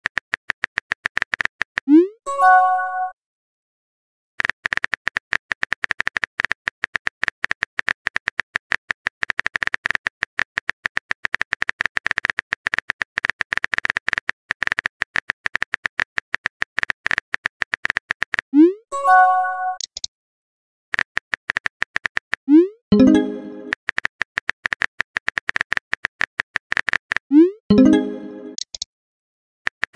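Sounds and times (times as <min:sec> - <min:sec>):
on-screen keyboard tap clicks: 0:19.8 - 0:20.1, 0:27.8 - 0:28.9.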